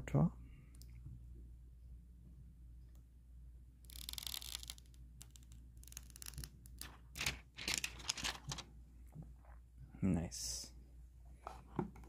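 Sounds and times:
plastic film peeling crackle: 0:03.9 - 0:08.6.

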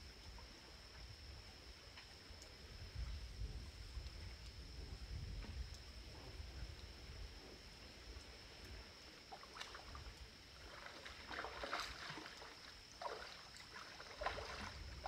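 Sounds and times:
fish splashing at water surface: 0:09.3 - 0:15.0.

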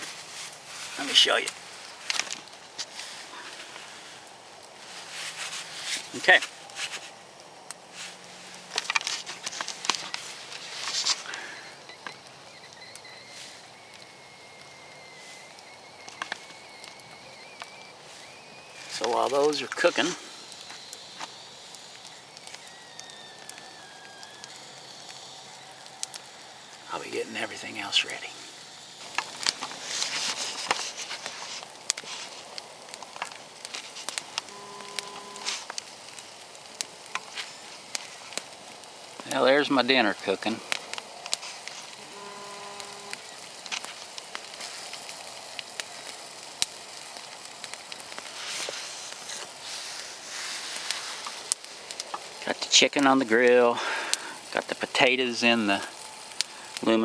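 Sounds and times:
campfire coals crackling: 0:00.0 - 0:57.0
fire hiss: 0:00.0 - 0:57.0
faint steady tone: 0:03.0 - 0:44.0
thin high whistle: 0:10.9 - 0:28.3, 0:34.0 - 0:35.7, 0:42.0 - 0:43.4.

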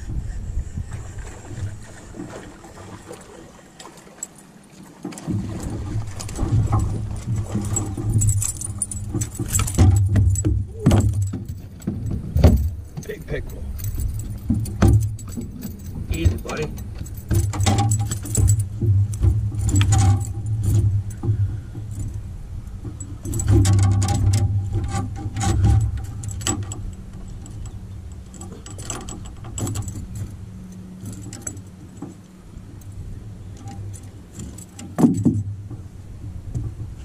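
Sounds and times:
thumps against aluminum hull: 0:05.0 - 0:22.1, 0:22.8 - 0:26.9, 0:33.6 - 0:37.0.

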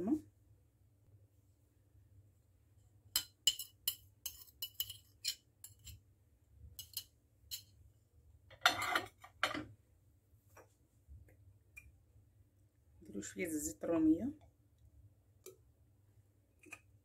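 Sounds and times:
spoon clinking on ceramic dish: 0:03.2 - 0:06.0, 0:06.8 - 0:07.7.

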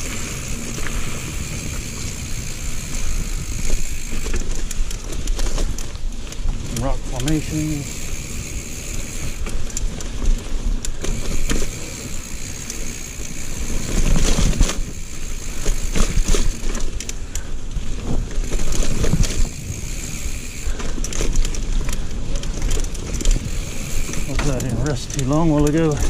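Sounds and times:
bike rattling: 0:00.0 - 0:26.0
bike tyres crunching on dirt: 0:00.0 - 0:26.0.

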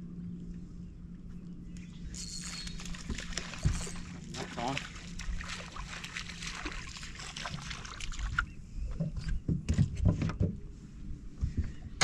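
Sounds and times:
water splashing around boat: 0:02.4 - 0:10.5.

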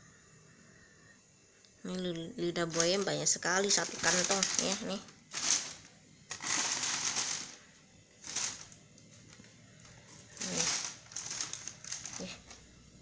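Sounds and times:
plastic bag rustling and crinkling: 0:02.6 - 0:12.7.

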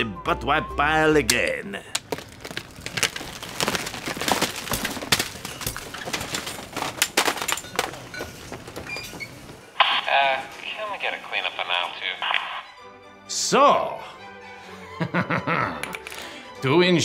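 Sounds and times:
packages clattering into basket: 0:02.0 - 0:09.4.

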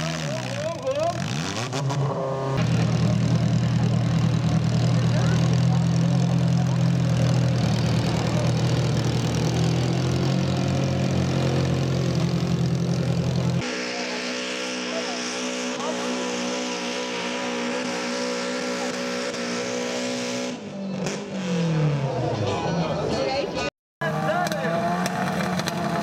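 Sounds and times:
tractor engine running hard: 0:02.6 - 0:20.4, 0:24.0 - 0:26.0.

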